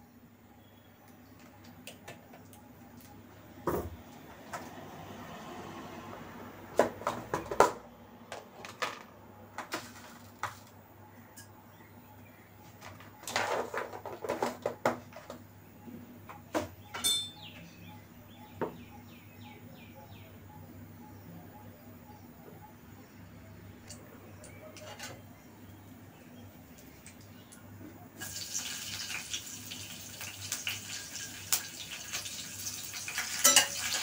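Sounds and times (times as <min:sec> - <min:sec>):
kitchen utensils clattering: 0:16.9 - 0:17.5, 0:24.8 - 0:25.3, 0:33.0 - 0:34.0.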